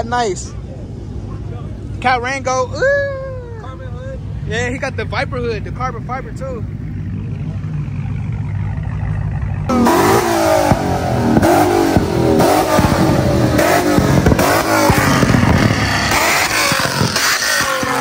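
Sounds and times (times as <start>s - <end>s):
engine idling rumble: 0.0s - 18.0s
car engine revving: 4.2s - 18.0s
exhaust cracks: 4.5s - 18.0s.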